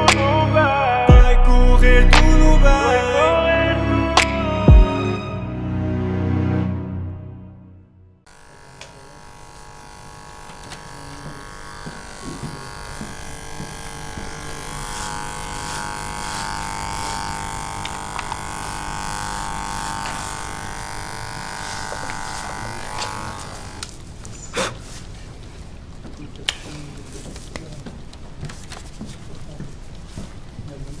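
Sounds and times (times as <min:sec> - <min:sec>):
electric hair clippers buzzing: 0:08.3 - 0:24.0.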